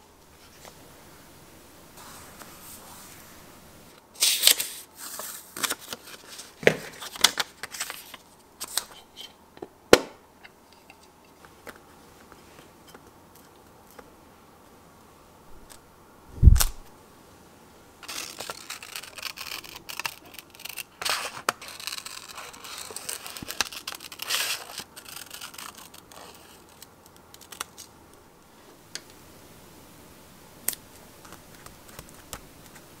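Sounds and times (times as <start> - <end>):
scissors cutting paper: 18.0 - 27.9.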